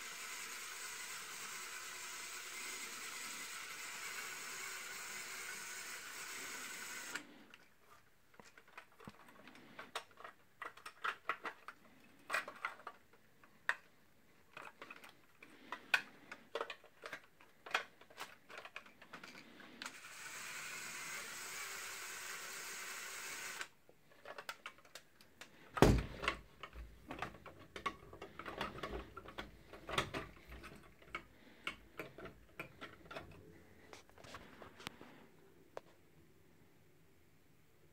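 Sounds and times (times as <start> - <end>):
plastic toy clicks and rattles: 8.5 - 13.8, 14.5 - 25.2
heavy thump: 25.8 - 26.3.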